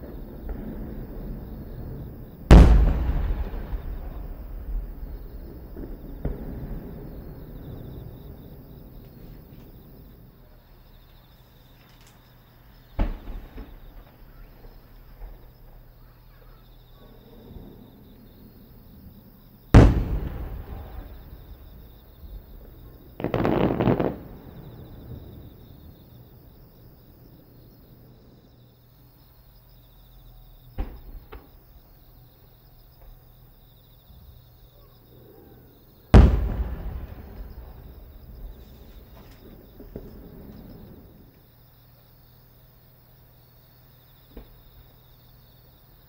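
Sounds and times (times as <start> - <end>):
firework shells bursting: 0.0 - 10.0, 19.8 - 27.0, 36.1 - 41.4
deep echoing boom: 2.5 - 8.8, 19.8 - 23.3, 36.2 - 38.6
firework crackling: 19.8 - 26.4, 36.1 - 41.4.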